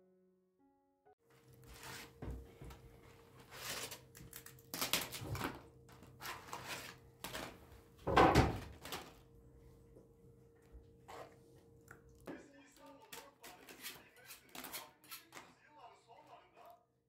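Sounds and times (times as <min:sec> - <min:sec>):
faint steady hum: 0:08.8 - 0:12.3.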